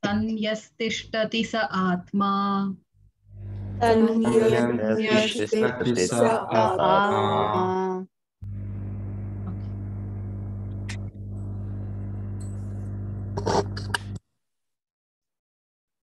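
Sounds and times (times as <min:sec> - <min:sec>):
electrical hum: 0:03.3 - 0:14.2.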